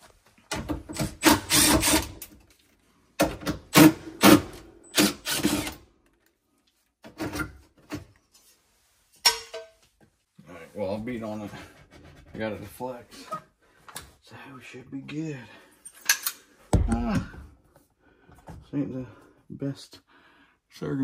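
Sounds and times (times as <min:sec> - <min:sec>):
cordless drill driving screws: 0:00.9 - 0:02.3, 0:03.8 - 0:05.8.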